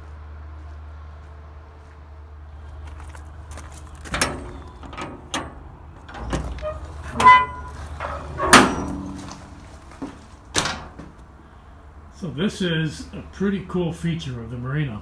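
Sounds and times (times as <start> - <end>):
heavy metal door creaking: 4.0 - 11.2
metal clanks of door latches: 4.0 - 11.2.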